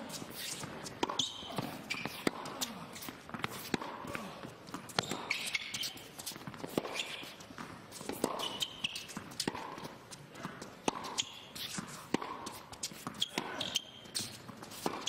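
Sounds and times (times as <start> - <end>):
shoes squeaking on court: 0.0 - 15.0
tennis ball struck by racket: 0.3 - 4.2, 6.5 - 13.7, 14.8 - 15.0.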